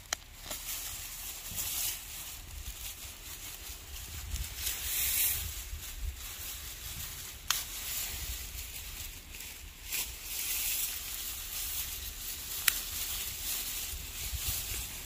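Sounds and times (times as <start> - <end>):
rustling outdoors: 0.0 - 15.0
wind rumble on microphone: 2.2 - 9.4, 11.0 - 15.0.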